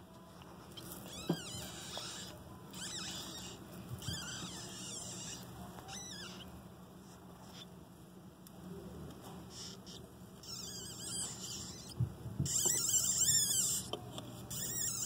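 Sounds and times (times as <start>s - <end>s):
mouse squeaking: 0.7s - 6.6s, 9.5s - 15.0s.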